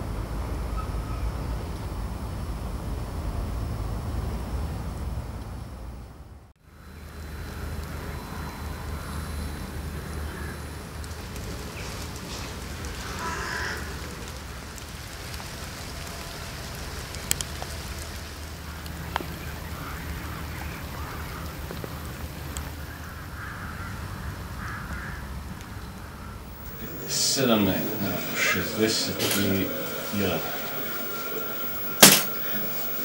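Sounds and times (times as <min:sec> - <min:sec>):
distant birds calling: 0:26.5 - 0:33.0.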